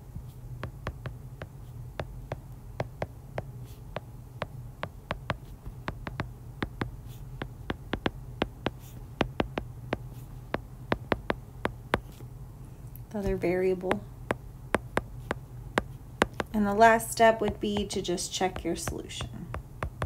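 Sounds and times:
steady low hum: 0.0s - 20.0s
stylus tapping on glass screen: 4.8s - 12.2s, 13.2s - 16.5s.

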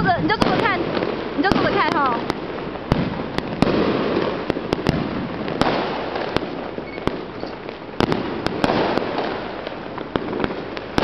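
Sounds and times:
din of fireworks: 0.0s - 11.0s
fireworks bangs: 0.0s - 11.0s.

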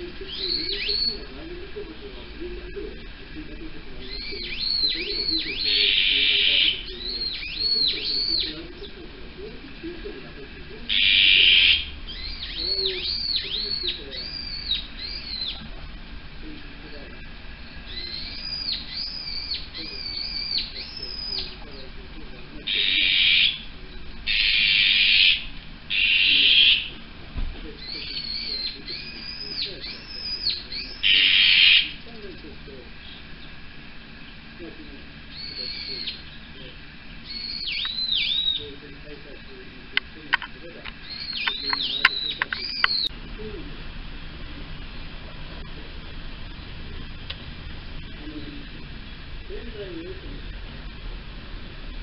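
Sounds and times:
magpies harsh raspy calls: 0.0s - 43.2s
bird whistled notes: 0.3s - 1.3s, 4.0s - 8.6s, 10.9s - 15.6s, 17.9s - 21.6s, 27.8s - 32.0s, 35.3s - 36.4s, 37.2s - 38.7s, 41.0s - 43.1s
bird rasping note: 3.9s - 8.9s, 10.8s - 15.6s, 22.6s - 27.1s, 27.8s - 32.4s.

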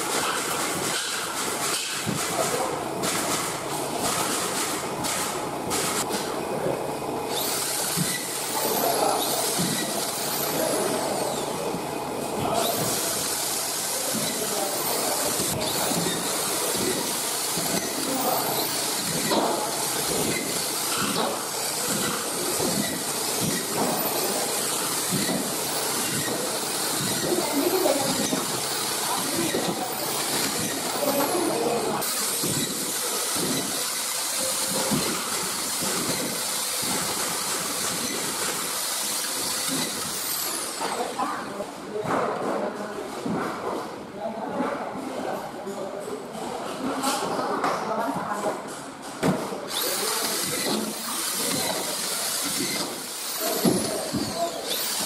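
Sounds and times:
screw gun driving screws: 49.7s - 55.0s.

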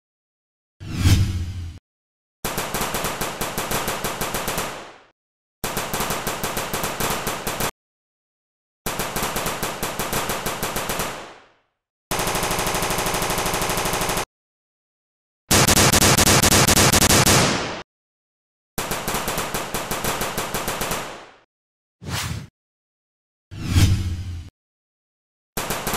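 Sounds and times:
machine-gun fire bursts: 2.4s - 7.7s, 8.9s - 11.4s, 12.1s - 14.3s, 15.5s - 17.8s, 18.8s - 21.5s, 25.6s - 25.9s.

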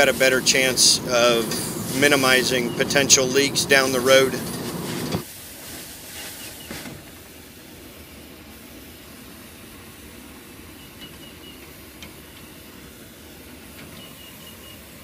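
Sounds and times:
torch flame hissing: 0.0s - 6.2s.

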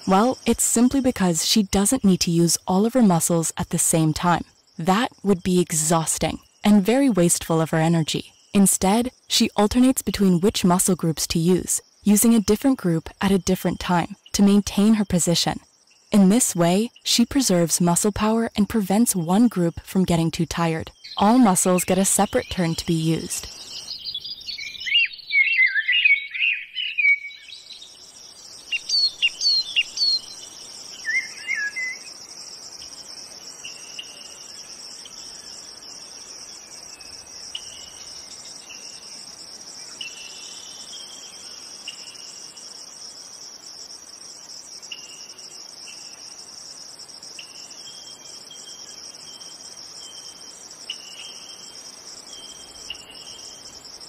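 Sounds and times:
high-pitched insect chorus: 0.0s - 20.2s, 20.8s - 54.0s
bird chirping: 20.9s - 32.1s.

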